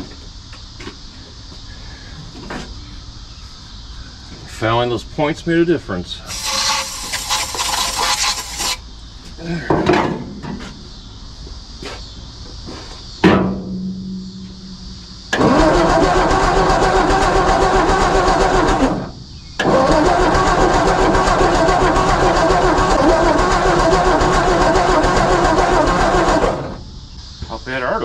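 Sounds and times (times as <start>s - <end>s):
engine cranking on starter: 15.3s - 26.8s.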